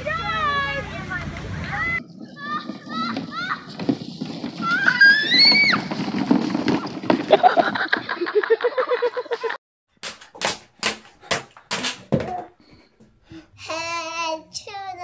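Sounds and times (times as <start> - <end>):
rustling: 2.0 - 8.0
child's voice: 13.6 - 15.0.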